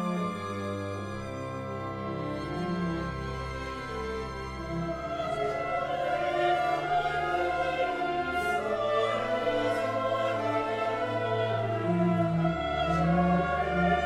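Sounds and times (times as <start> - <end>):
choir singing: 0.0 - 14.0
orchestra strings: 0.0 - 14.0.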